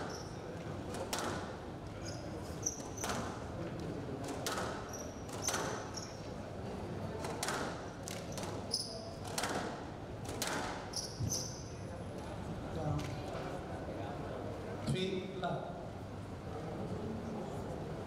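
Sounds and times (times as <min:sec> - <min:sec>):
shoes squeaking on floor: 0:00.0 - 0:00.4, 0:02.0 - 0:03.2, 0:04.9 - 0:06.3, 0:08.3 - 0:09.2, 0:10.9 - 0:11.8
squash ball hit by rackets: 0:00.9 - 0:01.5, 0:04.2 - 0:05.8, 0:07.2 - 0:08.6, 0:09.2 - 0:10.9.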